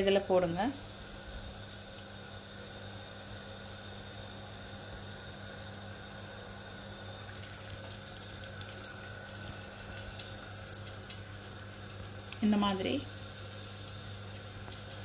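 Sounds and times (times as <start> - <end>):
dough sizzling in hot oil: 0.0 - 15.0
steady low hum: 0.0 - 15.0
oil crackling and popping: 7.3 - 15.0.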